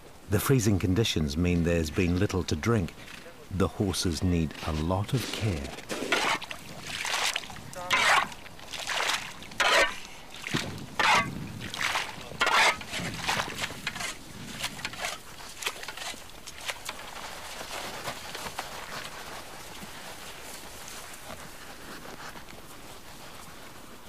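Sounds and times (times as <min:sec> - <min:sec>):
faint steady hiss: 0:00.0 - 0:24.0
horse slurping water: 0:05.2 - 0:21.5.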